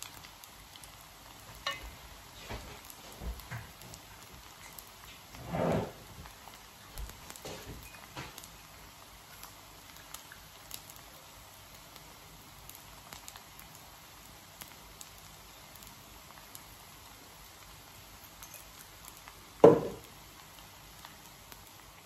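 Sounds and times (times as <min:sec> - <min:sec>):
low crackle: 0:00.0 - 0:22.0
loud ringing knock: 0:19.6 - 0:20.0.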